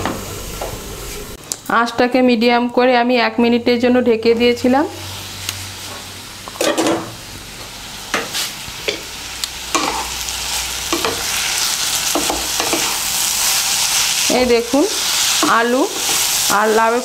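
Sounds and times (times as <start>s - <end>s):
vegetables sizzling in oil: 4.4s - 17.0s.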